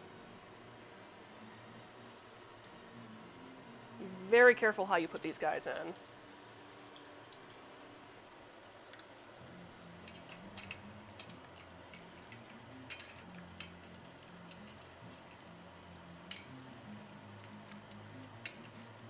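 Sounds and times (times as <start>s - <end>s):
oil crackling in a pot: 4.2s - 19.0s.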